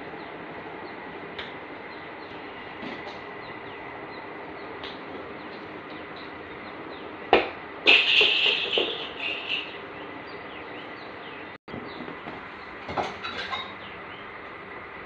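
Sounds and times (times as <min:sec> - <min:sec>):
loud high-pitched tone: 0:07.9 - 0:09.8
ball hitting tiled floor: 0:08.2 - 0:09.0.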